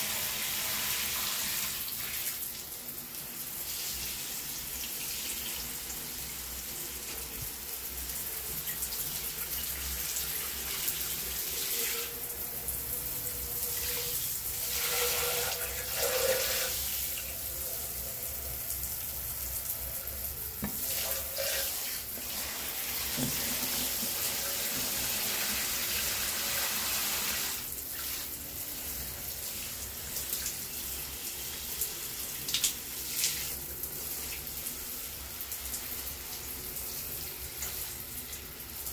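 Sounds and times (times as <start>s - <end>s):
shower spray splashing: 20.5s - 38.9s.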